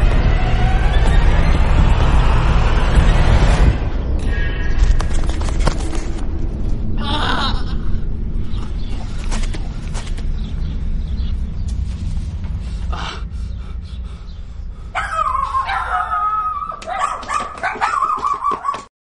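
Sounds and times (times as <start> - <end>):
steady low rumble: 0.0 - 17.7
dog whining and yelping: 15.0 - 18.8.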